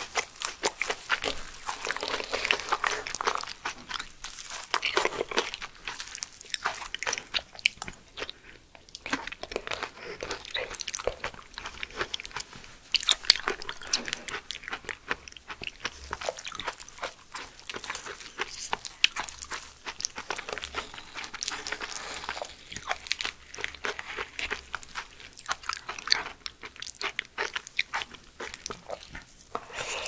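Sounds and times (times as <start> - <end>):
wet chewing mouth clicks: 6.5 - 30.0
metal spoon scraping leaf: 20.2 - 24.0.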